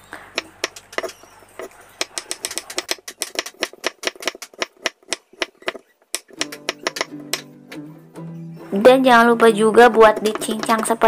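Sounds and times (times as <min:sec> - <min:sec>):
knife tapping wooden board: 0:00.4 - 0:07.5, 0:09.4 - 0:11.0.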